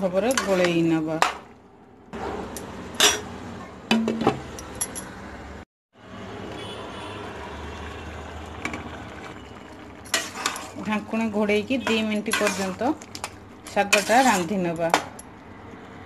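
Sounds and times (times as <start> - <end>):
curry simmering and bubbling: 7.1 - 14.4.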